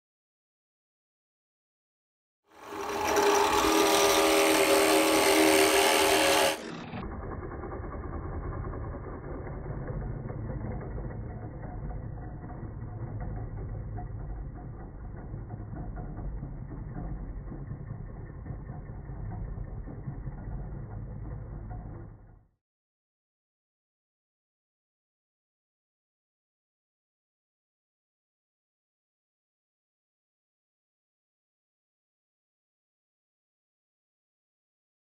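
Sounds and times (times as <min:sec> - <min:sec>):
drill press boring into wood: 0:02.6 - 0:22.3.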